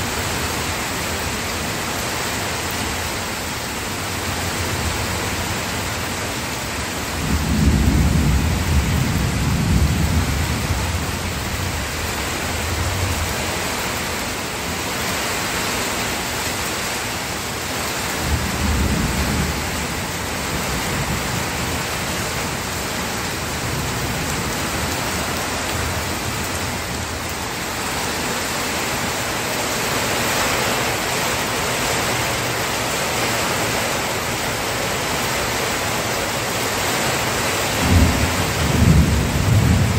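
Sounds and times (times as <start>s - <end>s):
steady rain: 0.0s - 39.9s
thunder rumbling: 7.2s - 12.0s, 37.7s - 39.9s.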